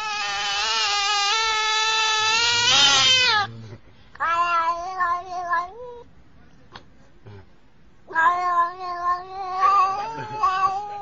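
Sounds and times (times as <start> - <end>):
cat yowling: 0.0 - 3.5, 4.2 - 6.0, 8.1 - 11.0.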